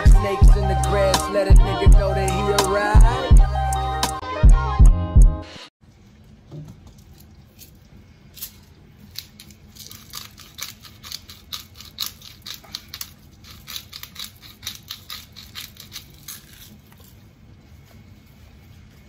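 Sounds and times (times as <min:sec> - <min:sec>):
pepper grinder clicking: 0:09.1 - 0:16.7.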